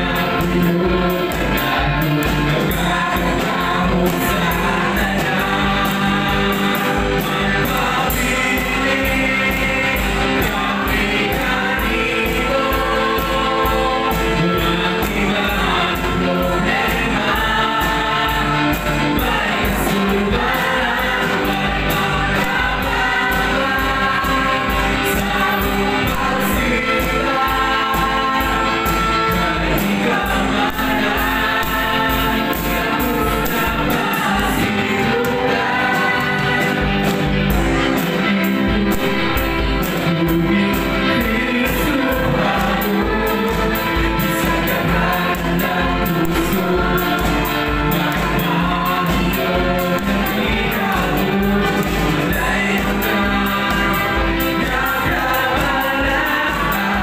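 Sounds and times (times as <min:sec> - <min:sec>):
drum kit beat: 0:00.0 - 0:57.0
keyboard: 0:00.0 - 0:57.0
voices singing together: 0:00.0 - 0:57.0.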